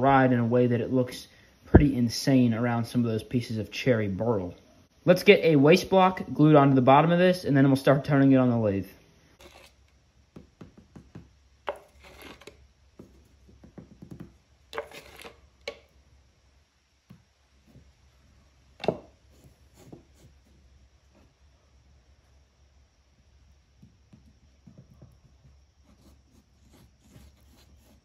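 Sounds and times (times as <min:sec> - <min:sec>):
light taps and scrapes: 0:11.7 - 0:15.8.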